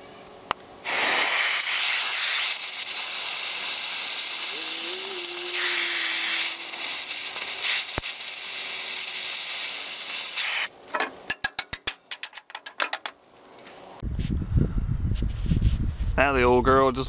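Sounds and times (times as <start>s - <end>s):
cutting torch hissing: 0.8s - 10.7s
sharp clicks and knocks: 10.9s - 13.2s.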